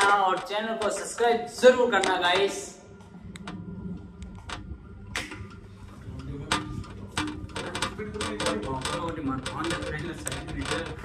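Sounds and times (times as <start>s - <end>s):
ceiling fan hum: 0.0s - 11.0s
clicks and knocks: 3.3s - 11.0s.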